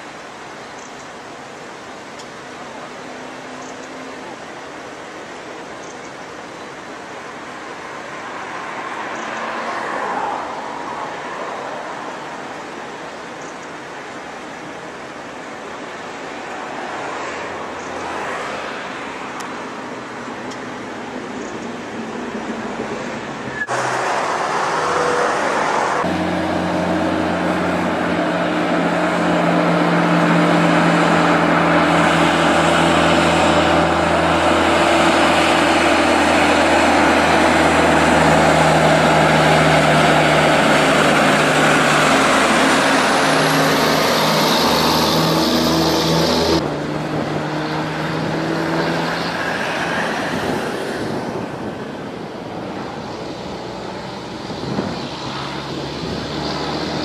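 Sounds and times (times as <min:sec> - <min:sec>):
tyre and traffic noise: 0:00.0 - 0:57.0
diesel truck engines droning: 0:18.8 - 0:57.0.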